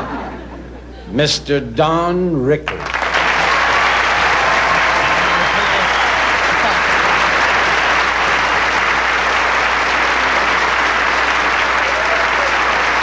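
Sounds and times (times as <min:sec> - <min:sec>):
audience applauding: 0:02.7 - 0:13.0.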